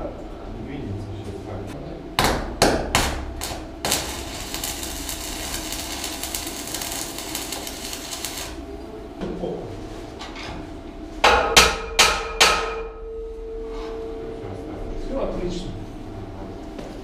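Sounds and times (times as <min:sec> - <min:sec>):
electric arc welding crackling: 0:02.8 - 0:08.8.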